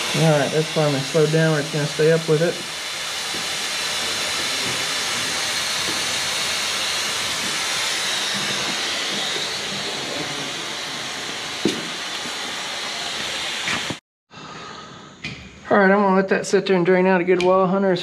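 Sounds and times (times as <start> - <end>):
vacuum drain barrel hissing: 0.0 - 14.0.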